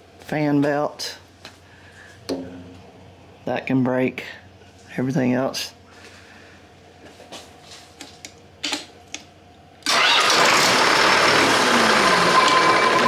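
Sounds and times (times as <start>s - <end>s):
pump engine running: 9.8s - 13.0s.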